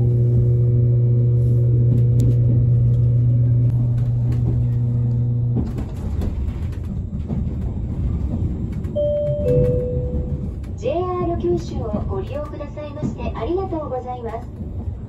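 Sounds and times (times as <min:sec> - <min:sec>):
low electrical hum: 0:00.0 - 0:08.4
train wheels rumbling on track: 0:00.0 - 0:15.0.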